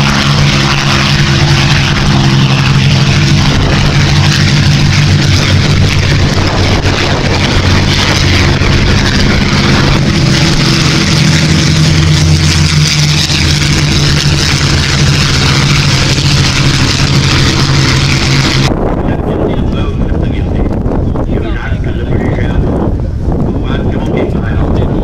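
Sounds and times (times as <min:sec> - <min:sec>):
rushing noise: 0:00.0 - 0:19.2
propeller plane engines droning: 0:00.0 - 0:25.0.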